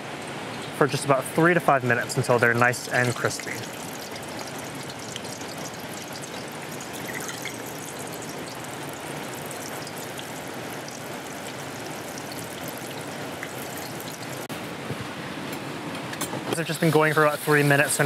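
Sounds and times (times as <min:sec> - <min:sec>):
food deep-frying in hot oil: 0:01.9 - 0:14.5, 0:16.6 - 0:18.0.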